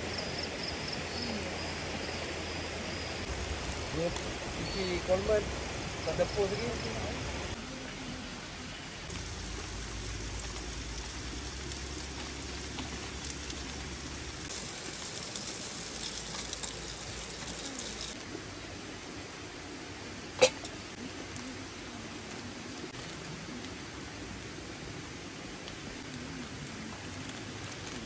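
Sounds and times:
steady hiss: 0:00.2 - 0:07.6, 0:09.0 - 0:21.5
campfire crackling: 0:03.2 - 0:07.6, 0:09.0 - 0:18.2, 0:25.6 - 0:28.0.

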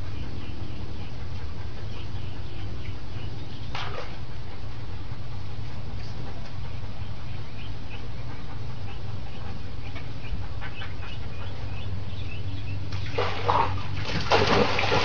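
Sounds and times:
dog splashing into pool: 0:12.9 - 0:15.0.

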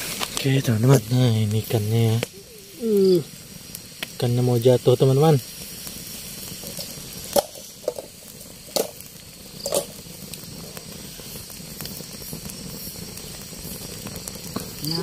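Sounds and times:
campfire crackling and hissing: 0:00.0 - 0:15.0
sharp fire pops: 0:00.0 - 0:15.0.

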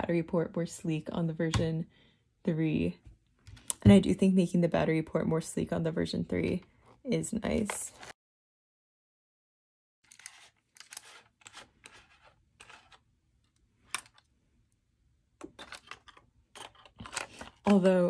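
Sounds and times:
plastic cap threads scratching: 0:10.1 - 0:13.0.

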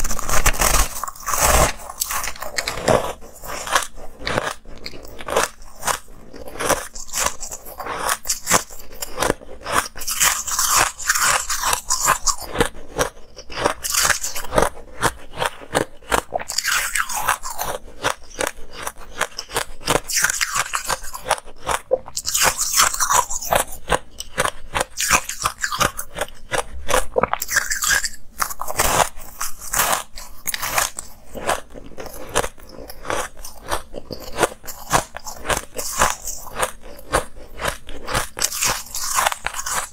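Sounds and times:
person chewing crunchy ice: 0:00.0 - 0:39.9.

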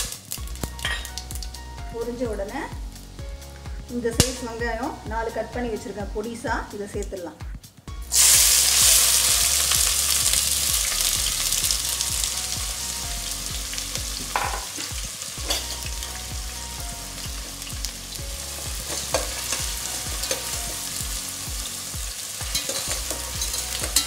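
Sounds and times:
onions sizzling in hot oil: 0:00.0 - 0:01.6, 0:08.1 - 0:24.0
metal skimmer clinking on pot: 0:22.5 - 0:24.0.

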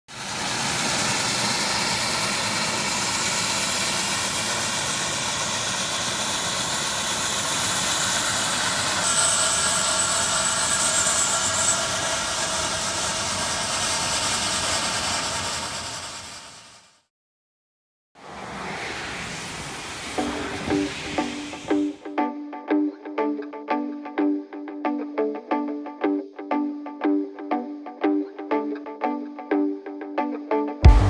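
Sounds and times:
steam locomotive rushing: 0:00.1 - 0:16.9, 0:18.2 - 0:22.1
thin high whine: 0:00.2 - 0:17.1, 0:18.2 - 0:22.2.

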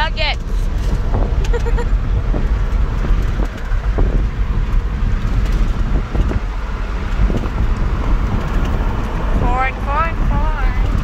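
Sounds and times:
car cabin road noise: 0:00.0 - 0:11.0.

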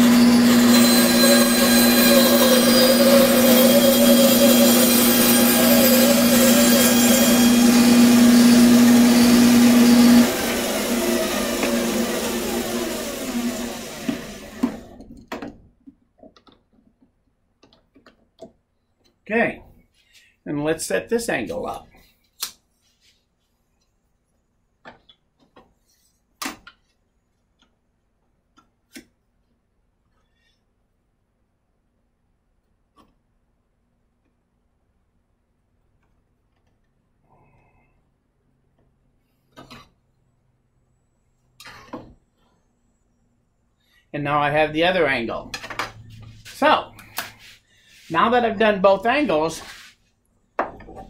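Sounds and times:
bandsaw cutting wood: 0:00.0 - 0:15.0.

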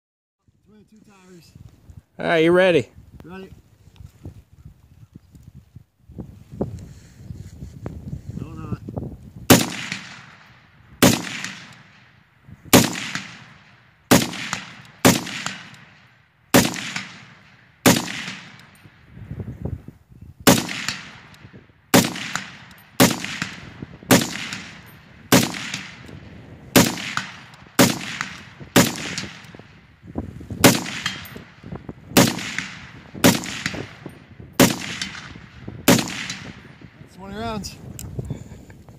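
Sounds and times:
rifle shots with echo: 0:09.5 - 0:18.9, 0:20.4 - 0:26.1, 0:26.7 - 0:29.8, 0:30.6 - 0:36.8.

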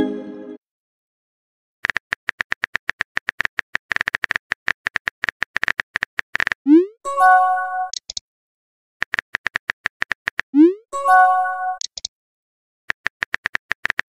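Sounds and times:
phone keyboard typing clicks: 0:01.8 - 0:06.6, 0:07.9 - 0:08.2, 0:09.0 - 0:10.5, 0:11.8 - 0:12.1, 0:12.9 - 0:14.0.

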